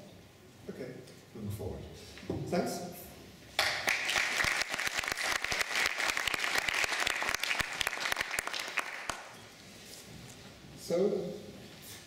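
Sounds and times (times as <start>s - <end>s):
audience applauding: 3.6s - 9.4s.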